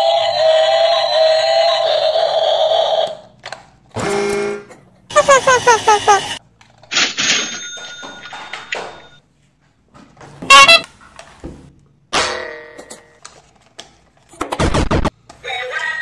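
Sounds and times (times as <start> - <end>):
toy horn toot: 4.0 - 6.4, 10.5 - 10.9
toy train electronic sounds: 5.1 - 6.4.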